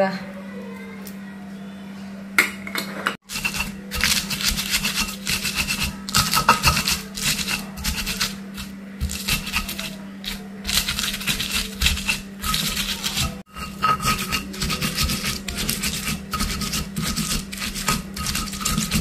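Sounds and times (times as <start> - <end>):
stone pestle pounding in mortar: 3.2 - 19.0.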